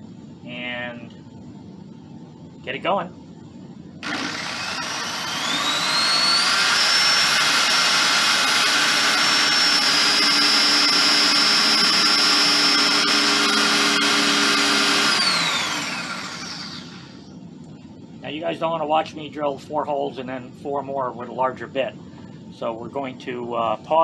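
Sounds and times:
electric drill motor whine: 4.0 - 17.4.

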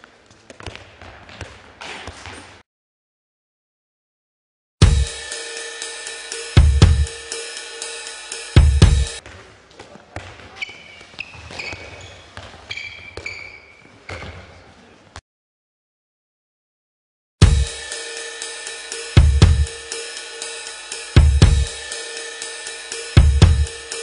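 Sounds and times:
sneakers squeaking on floor: 0.0 - 2.6, 9.2 - 15.2
handball thudding: 0.4 - 2.5
music with heavy drums and cymbals: 4.8 - 9.2, 17.4 - 24.0.

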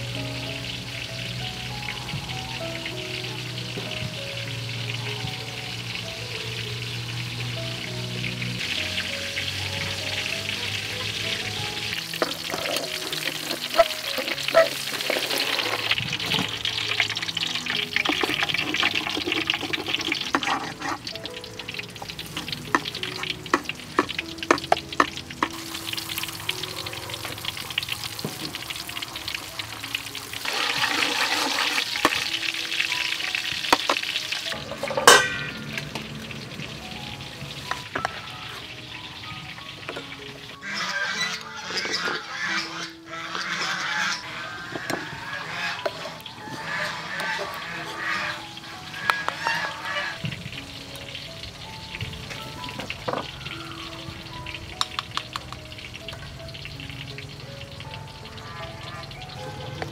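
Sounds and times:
oil sizzling in a wok: 0.0 - 59.9
metal utensils clinking and scraping: 10.5 - 36.1, 37.6 - 50.2.

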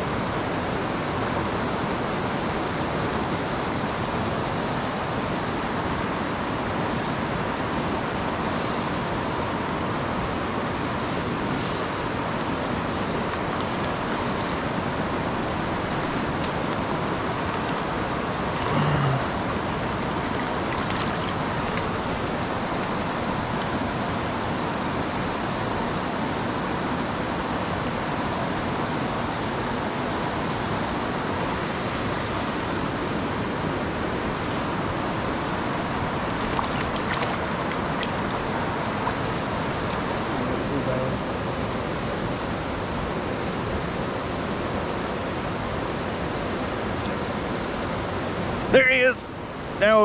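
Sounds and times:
river rushing: 0.0 - 50.0.

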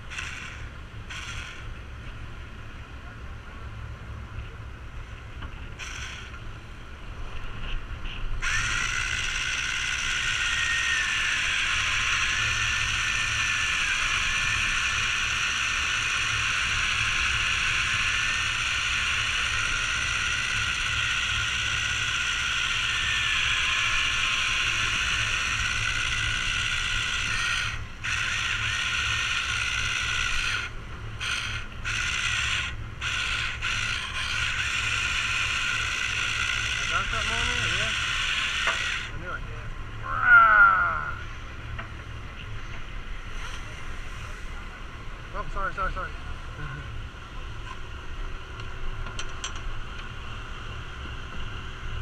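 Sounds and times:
fishing reel gears whirring: 0.0 - 1.8, 5.7 - 6.4, 8.4 - 39.5.

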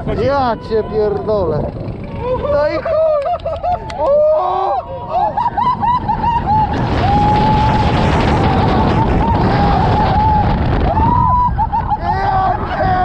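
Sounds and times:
roller coaster track noise: 0.0 - 13.0
wind rushing over microphone: 0.0 - 13.0.

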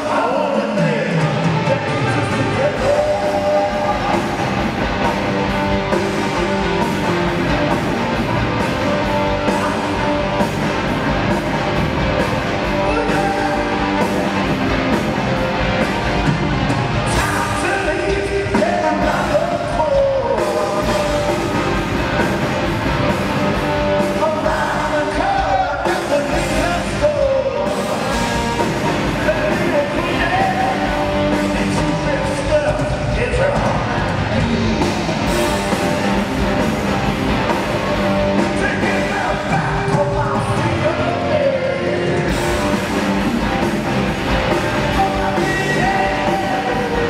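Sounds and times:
lead vocal singing: 0.0 - 4.8, 12.6 - 14.5, 17.0 - 21.6, 24.0 - 34.6, 38.3 - 43.4, 44.4 - 47.0
live hard rock band: 0.0 - 47.0.

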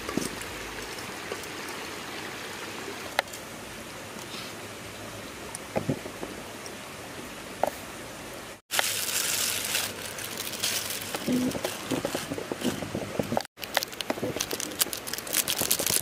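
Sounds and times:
forest stream rushing: 0.0 - 12.8
crackles and light knocks: 5.6 - 6.4, 8.7 - 16.0.

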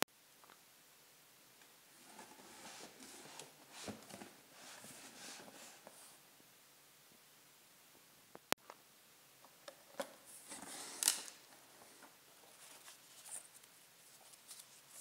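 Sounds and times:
packing paper rustle: 10.3 - 15.0.

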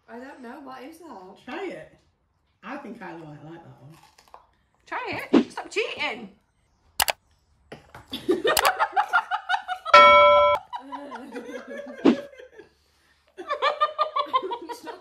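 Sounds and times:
steady electronic tone: 10.0 - 10.6
people laughing and giggling: 10.7 - 12.7, 13.4 - 15.0.

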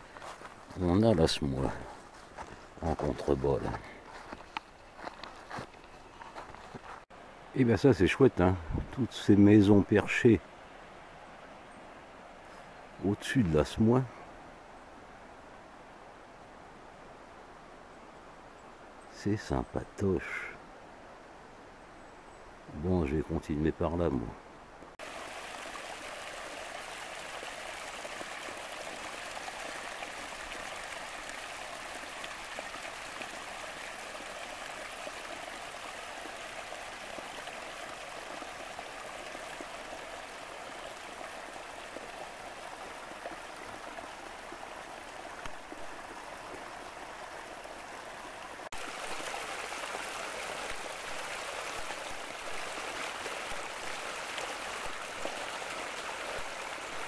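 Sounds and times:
water trickling over stones: 0.0 - 7.2, 25.0 - 57.0.

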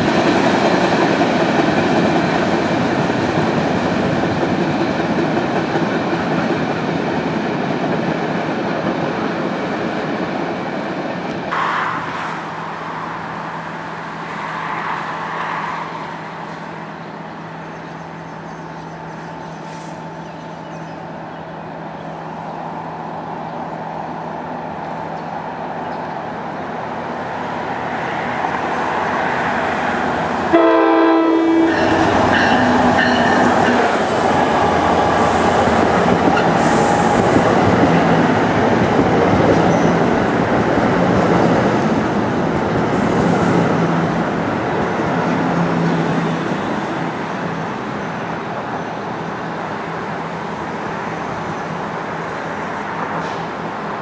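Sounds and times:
freight cars rumbling on rails: 0.0 - 54.0
locomotive approaching: 0.0 - 54.0
train horn blast: 30.5 - 33.2.

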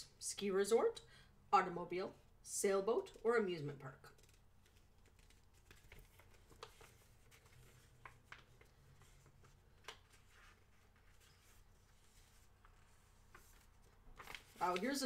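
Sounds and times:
paper booklet rustling: 4.0 - 15.0.

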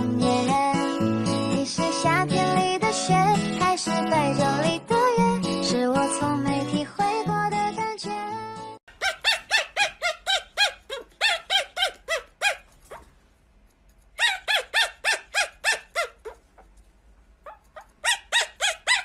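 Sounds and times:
puppy yapping: 8.9 - 13.1, 14.2 - 16.7, 17.4 - 19.0.

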